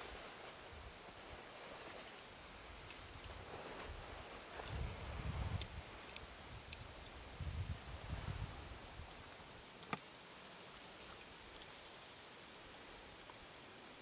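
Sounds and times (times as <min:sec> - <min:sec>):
faint high-pitched chirp: 0:04.0 - 0:11.6.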